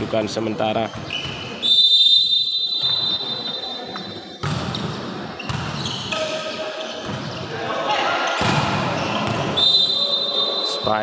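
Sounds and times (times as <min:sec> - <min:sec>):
crowd noise: 0:00.0 - 0:11.0
referee's whistle blast: 0:01.2 - 0:03.8, 0:09.4 - 0:10.8
volleyball being struck: 0:04.4 - 0:07.3, 0:08.4 - 0:09.6.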